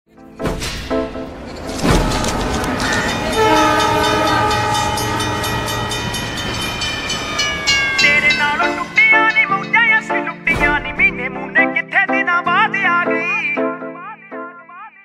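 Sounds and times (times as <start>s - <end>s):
song music: 0.1s - 15.0s
train horn chord sliding down: 2.1s - 10.3s.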